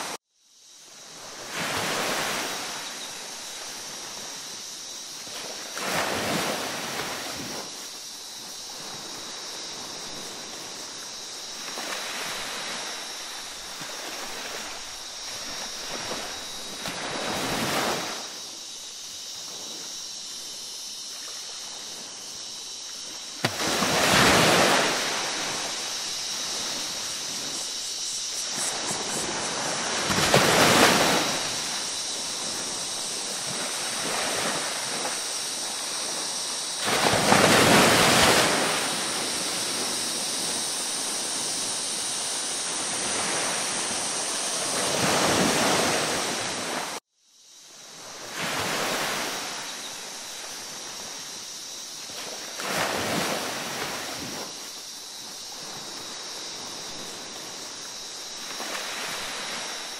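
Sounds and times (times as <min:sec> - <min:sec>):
ocean waves washing in: 0:19.4 - 0:47.0, 0:48.0 - 0:59.9.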